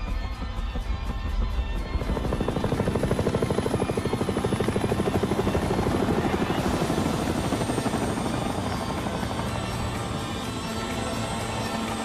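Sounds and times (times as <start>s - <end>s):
helicopter rotor chopping: 0.2s - 12.0s.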